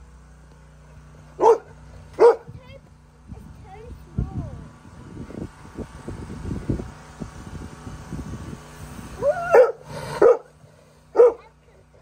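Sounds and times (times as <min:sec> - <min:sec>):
dog barking deep woofs: 0:01.4 - 0:02.5, 0:09.5 - 0:11.5.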